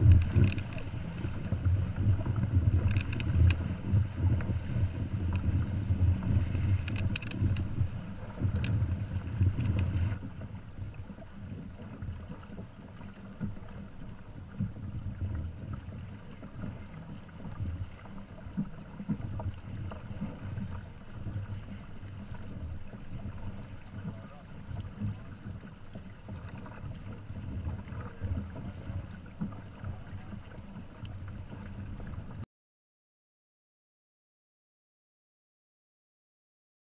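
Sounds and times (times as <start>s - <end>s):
wind buffeting microphone: 0.0s - 10.2s
water rushing along hulls: 0.0s - 32.4s.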